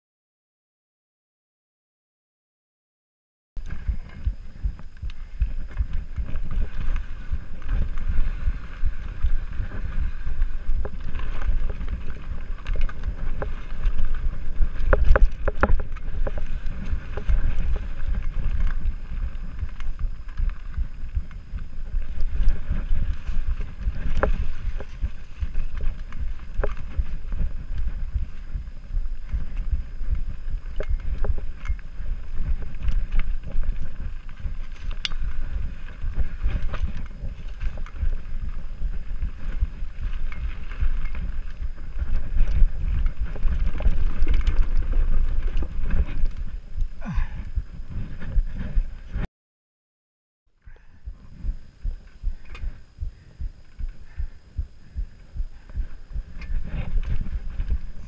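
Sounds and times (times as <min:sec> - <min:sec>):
bike clattering over rough ground: 0:03.6 - 0:48.9
bike tyres rumbling on dirt: 0:03.6 - 0:49.2, 0:50.6 - 0:58.0
wind buffeting microphone: 0:03.6 - 0:49.3, 0:50.6 - 0:58.0.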